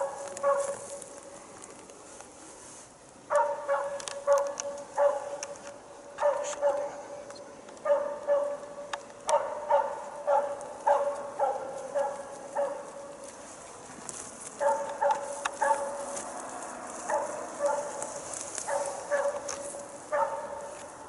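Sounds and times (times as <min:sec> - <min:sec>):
dog barking: 0:00.0 - 0:00.9, 0:03.3 - 0:05.5, 0:06.2 - 0:07.0, 0:07.8 - 0:13.1, 0:14.6 - 0:16.1, 0:17.0 - 0:20.8
sharp snaps: 0:03.3 - 0:05.8.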